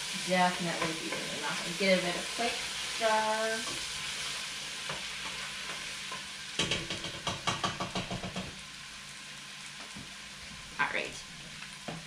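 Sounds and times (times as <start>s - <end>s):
vegetables sizzling in oil: 0.0s - 12.0s.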